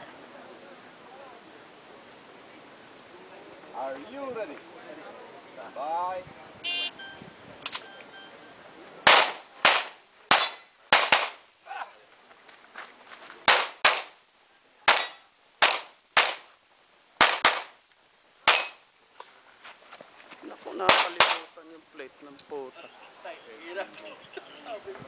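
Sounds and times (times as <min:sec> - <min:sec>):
handgun shots: 0:09.1 - 0:11.4, 0:13.5 - 0:14.2, 0:14.9 - 0:16.5, 0:17.2 - 0:17.8, 0:18.5 - 0:18.8, 0:20.9 - 0:21.5.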